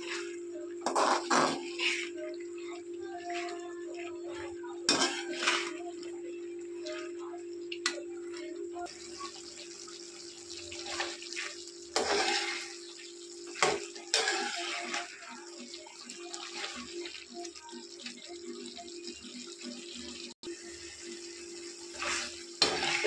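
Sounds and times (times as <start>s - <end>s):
tomatoes sizzling and bubbling: 0.0s - 23.0s
metal spoon scraping: 4.9s - 5.8s, 12.0s - 12.8s, 13.6s - 15.2s.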